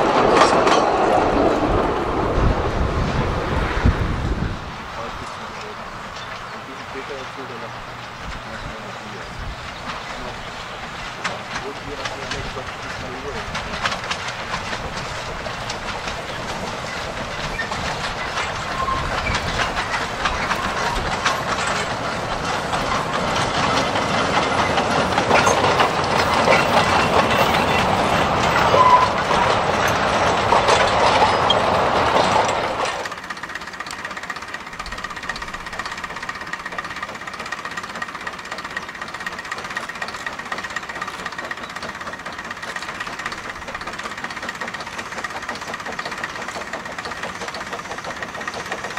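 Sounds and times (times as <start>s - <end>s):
steam train wheels clattering: 0.0s - 48.9s.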